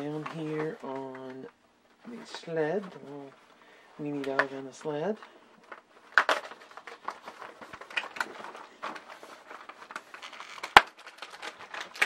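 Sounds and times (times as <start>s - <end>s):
cardboard rustling and crackling: 0.0s - 12.0s.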